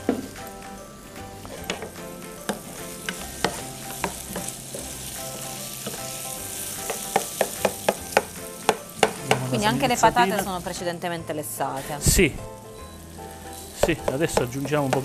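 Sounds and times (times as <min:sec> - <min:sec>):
food sizzling in a frying pan: 0:00.0 - 0:15.0
spoon knocking against pan: 0:01.6 - 0:04.6, 0:06.8 - 0:09.5, 0:13.8 - 0:15.0.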